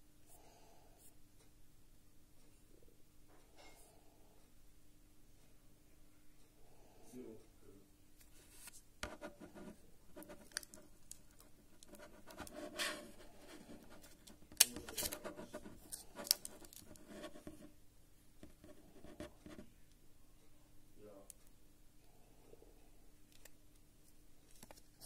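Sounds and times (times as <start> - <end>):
fingers tapping smartphone: 9.0 - 17.8.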